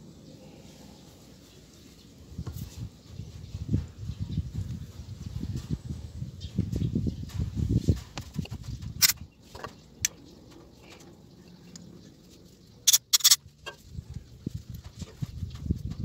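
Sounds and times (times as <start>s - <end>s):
sharp clicks: 12.9s - 13.4s.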